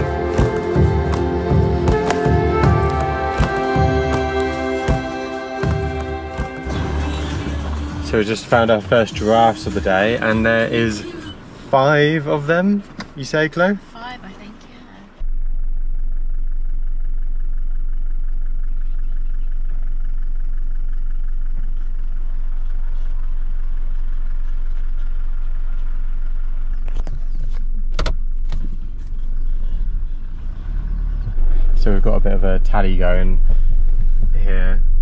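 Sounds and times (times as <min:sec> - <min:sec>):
car engine and road noise: 0:00.0 - 0:35.0
sharp knocks: 0:00.3 - 0:06.9.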